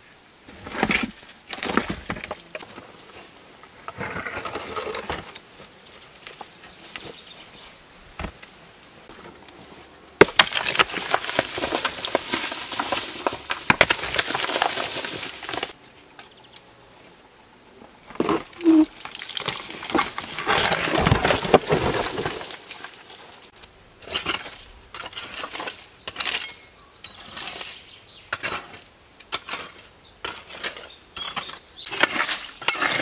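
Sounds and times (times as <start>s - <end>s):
hand scraping dirt and leaves: 9.0s - 16.0s, 18.1s - 33.0s
stones clattering: 10.2s - 15.8s, 18.1s - 23.5s.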